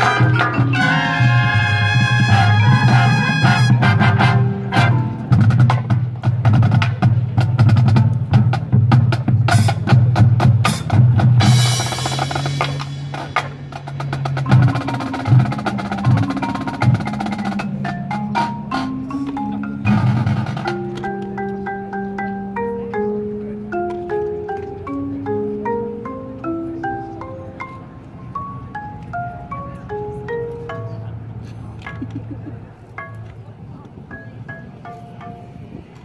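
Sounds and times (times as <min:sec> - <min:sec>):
mallet keyboard notes: 0:00.0 - 0:36.0
rapid drum strikes: 0:05.2 - 0:18.9.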